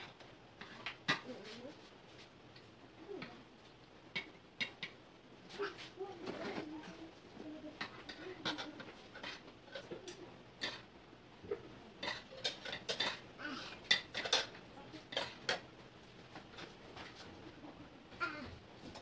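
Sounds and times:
cutlery clinking on a plate: 0:07.8 - 0:10.9, 0:12.0 - 0:13.2, 0:13.8 - 0:15.6.

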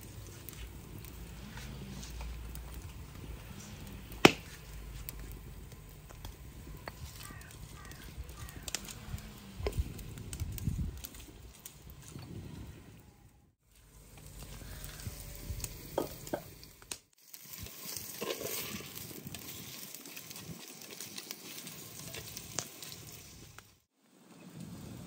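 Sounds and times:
food sizzling in hot fat: 0:00.0 - 0:12.2, 0:13.7 - 0:24.4
stirring scrapes: 0:17.5 - 0:19.9.

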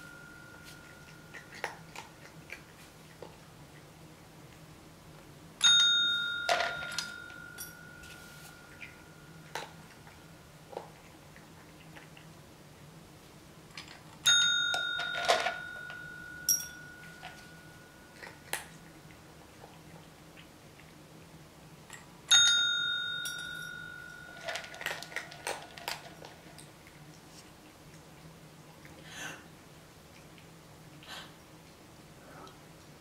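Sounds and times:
service bell ding: 0:05.6 - 0:09.4, 0:14.3 - 0:18.2, 0:22.3 - 0:24.8.

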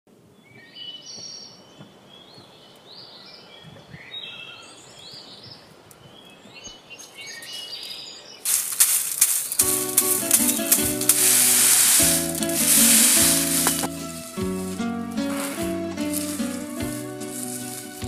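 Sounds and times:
small birds chirping: 0:00.4 - 0:18.0
broom sweeping dried pods: 0:08.5 - 0:18.0.

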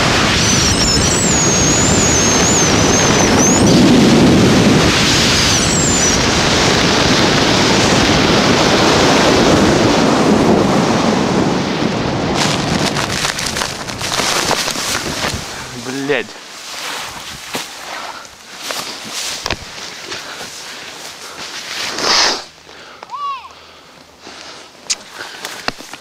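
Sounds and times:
thin wavering high whistle: 0:00.0 - 0:04.4, 0:05.0 - 0:06.5
wind rushing over microphone: 0:00.0 - 0:16.4, 0:17.0 - 0:17.9.

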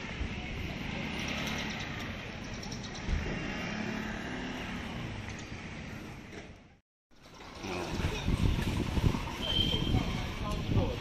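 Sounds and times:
street traffic: 0:00.0 - 0:11.0
motor scooter riding past: 0:03.0 - 0:05.2.

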